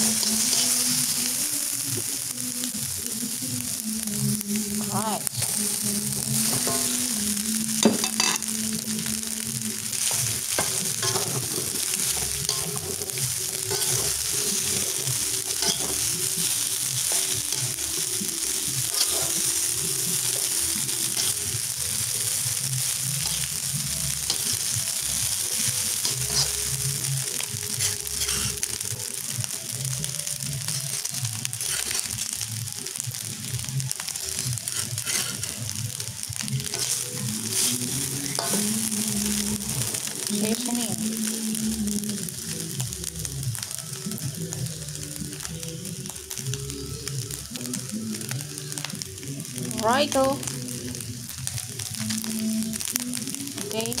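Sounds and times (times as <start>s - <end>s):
metal spatula scraping a wok: 0.0s - 1.4s, 6.3s - 7.0s, 10.0s - 21.7s, 23.1s - 27.1s, 27.7s - 28.9s, 30.6s - 32.4s, 34.1s - 35.8s, 36.6s - 40.2s
rice and egg sizzling in a wok: 0.0s - 54.0s.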